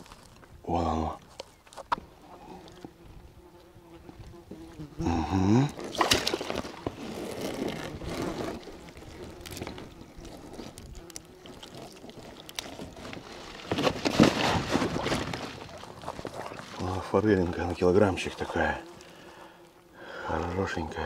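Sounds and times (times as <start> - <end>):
loud splash: 5.9 - 6.5.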